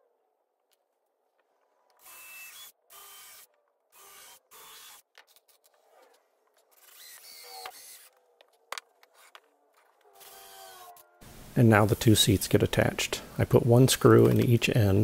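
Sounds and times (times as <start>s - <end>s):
cordless drill drilling wood: 2.0s - 5.0s, 6.8s - 8.2s, 10.2s - 11.0s.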